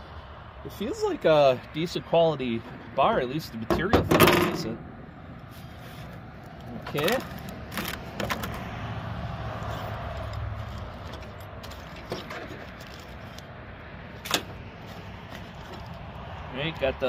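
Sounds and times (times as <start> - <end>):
hands handling plastic packaging: 5.6 - 8.6.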